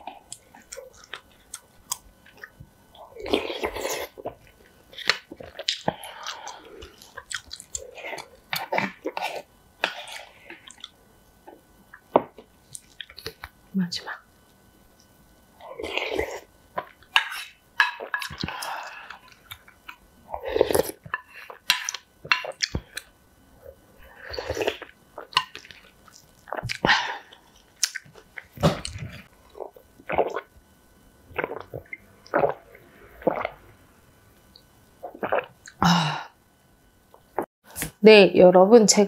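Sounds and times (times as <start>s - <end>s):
chewing and mouth clicks: 0.3s - 2.6s, 5.0s - 8.7s, 10.2s - 11.0s, 12.7s - 13.5s, 27.7s - 30.4s.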